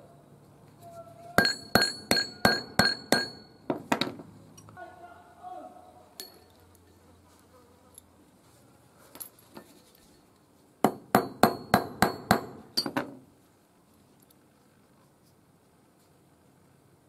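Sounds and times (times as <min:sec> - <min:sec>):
hammer striking steel: 0:01.4 - 0:04.1, 0:10.9 - 0:13.1
light metallic clinks: 0:06.2 - 0:07.0.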